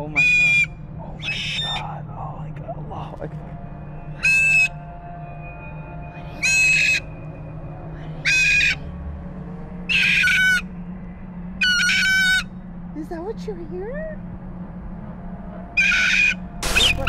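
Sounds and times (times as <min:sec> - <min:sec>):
cockatoo calling: 0:00.0 - 0:02.0, 0:04.1 - 0:04.8, 0:06.2 - 0:07.2, 0:08.0 - 0:08.8, 0:09.9 - 0:10.7, 0:11.6 - 0:12.5, 0:15.8 - 0:17.0.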